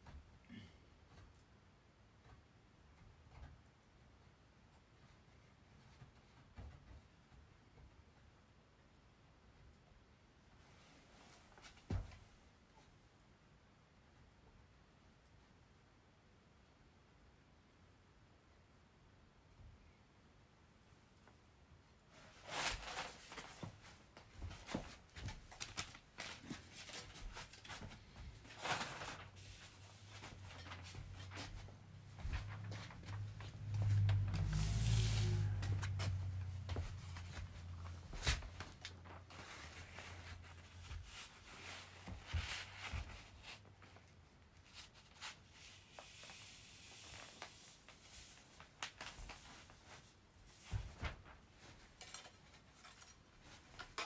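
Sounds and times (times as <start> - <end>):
paper rustling: 22.2 - 54.0
soft footsteps on mats: 29.4 - 43.4.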